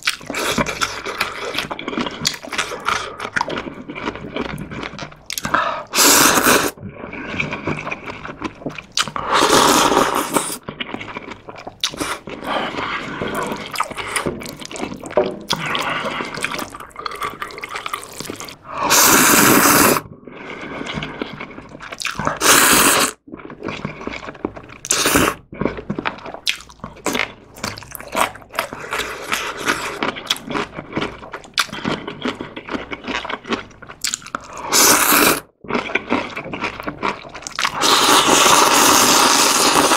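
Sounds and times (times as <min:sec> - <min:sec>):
wet chewing: 0:00.0 - 0:39.9
loud noodle slurps: 0:05.8 - 0:08.1, 0:09.2 - 0:11.2, 0:18.2 - 0:21.6, 0:22.2 - 0:23.2, 0:34.4 - 0:36.5, 0:37.1 - 0:39.9.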